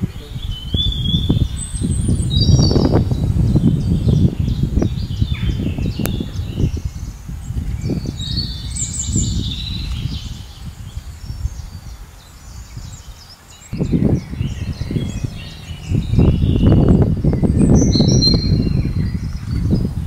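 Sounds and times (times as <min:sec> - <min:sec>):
birds chirping and calling: 0:00.0 - 0:20.0
low rumble: 0:13.8 - 0:20.0.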